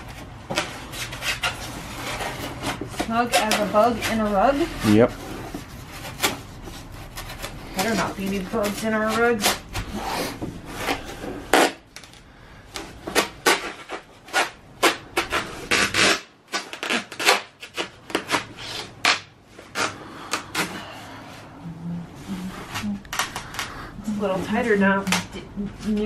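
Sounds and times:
foam board scraping against wood: 0.0 - 11.8.

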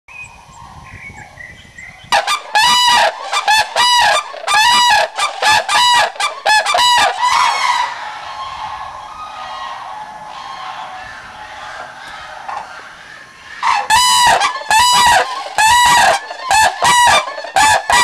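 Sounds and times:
faint small bird song: 0.1 - 2.2
cranes calling: 0.3 - 18.0.

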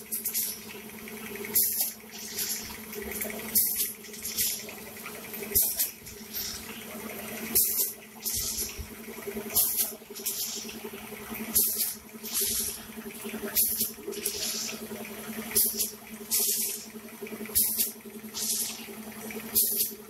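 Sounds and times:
packing machine motor hum: 0.0 - 20.0
pneumatic air hiss: 0.1 - 0.6, 1.5 - 2.8, 3.5 - 4.7, 5.5 - 6.8, 7.5 - 8.9, 9.5 - 10.8, 11.5 - 12.9, 13.5 - 14.9, 15.5 - 16.9, 17.6 - 18.9, 19.5 - 20.0.

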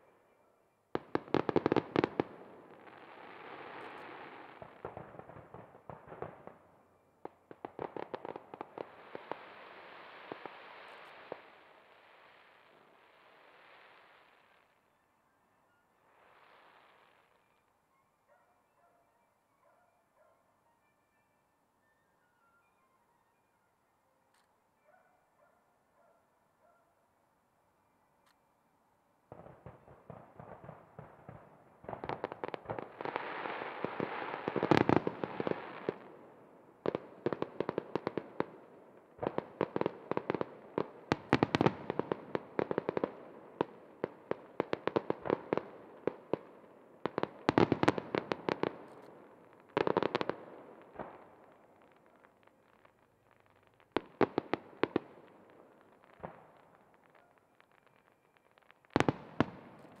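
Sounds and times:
fireworks crackling and popping: 1.0 - 14.8, 29.3 - 36.2, 36.8 - 60.0.

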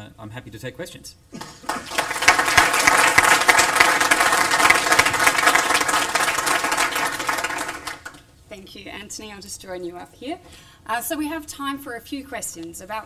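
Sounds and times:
audience applauding: 1.4 - 8.3
speech: 8.5 - 13.0.

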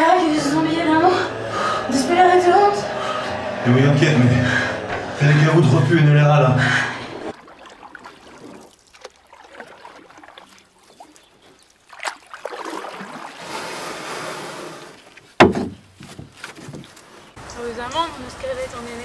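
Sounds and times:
sea waves washing: 0.0 - 15.2.

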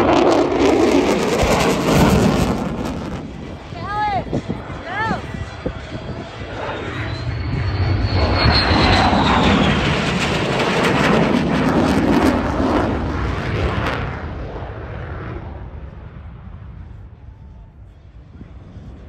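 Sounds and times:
fighter jet flying past: 0.0 - 19.0
jet engine high whine: 0.0 - 19.0.

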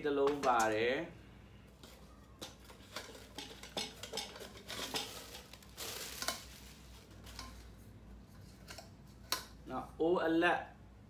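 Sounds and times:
metal pots clinking and scraping: 1.8 - 7.7.

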